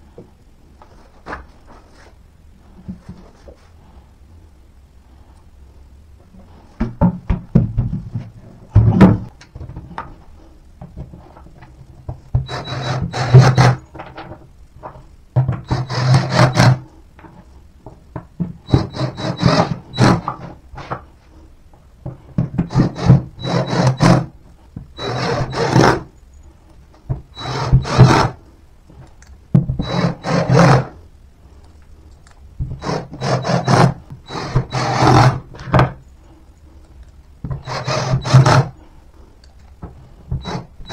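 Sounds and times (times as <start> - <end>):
screw grinding into board: 12.4 - 13.8, 15.6 - 16.8, 18.7 - 20.4, 25.0 - 26.1, 27.4 - 28.4, 29.8 - 31.0, 32.7 - 35.5, 37.5 - 38.7
cordless drill motor whine: 25.0 - 25.8, 27.4 - 28.2.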